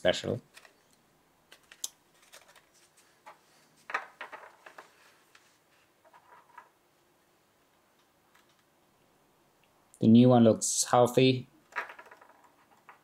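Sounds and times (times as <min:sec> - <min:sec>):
small clicks taps and rustles: 0:00.5 - 0:06.7, 0:07.7 - 0:08.7, 0:11.7 - 0:13.0.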